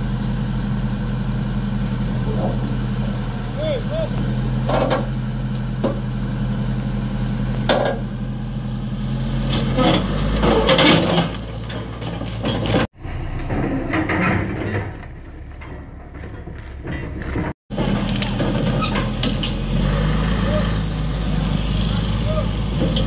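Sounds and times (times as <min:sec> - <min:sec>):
bulldozer diesel engine running: 0:00.0 - 0:23.0
steel tracks clanking and grinding: 0:01.6 - 0:06.8, 0:07.4 - 0:08.2, 0:09.3 - 0:23.0
loud clanks: 0:04.6 - 0:05.2, 0:09.5 - 0:19.7.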